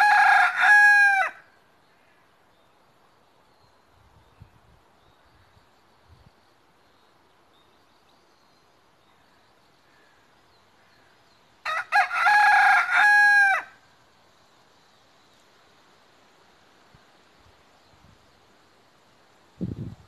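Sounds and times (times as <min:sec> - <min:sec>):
rooster crowing: 0:00.0 - 0:01.5, 0:11.6 - 0:13.8
faint yard background: 0:00.0 - 0:20.0.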